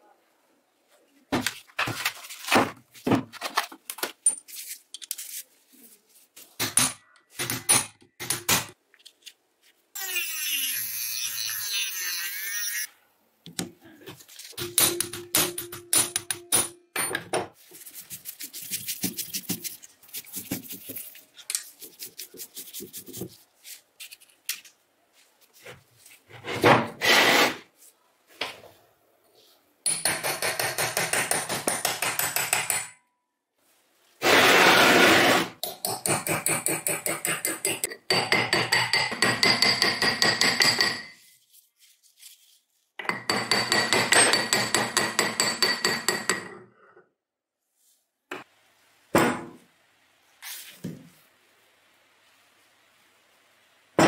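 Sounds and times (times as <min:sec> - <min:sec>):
hammer and chisel on metal: 0:06.6 - 0:08.8, 0:14.6 - 0:17.4, 0:29.8 - 0:33.0, 0:35.6 - 0:41.2, 0:43.0 - 0:46.7.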